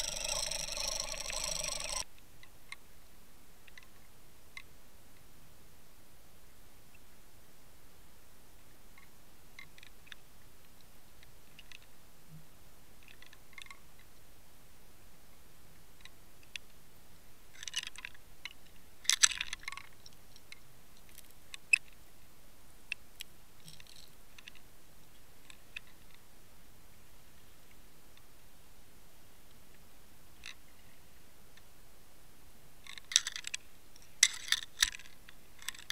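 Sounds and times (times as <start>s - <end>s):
sharp clicks and crackles: 0.0s - 2.0s.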